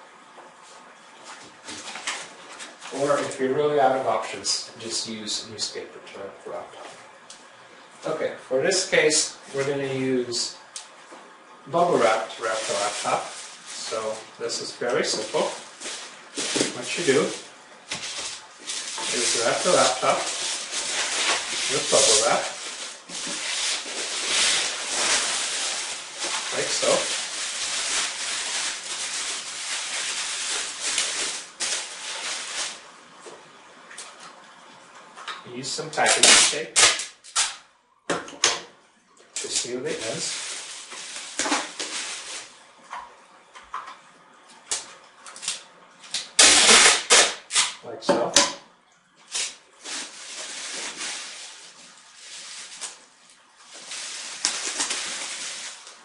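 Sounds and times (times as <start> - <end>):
bubble wrap rustling and crinkling: 1.2 - 4.3, 11.8 - 33.0, 36.0 - 37.6, 39.4 - 42.6, 44.8 - 47.8, 49.3 - 56.0.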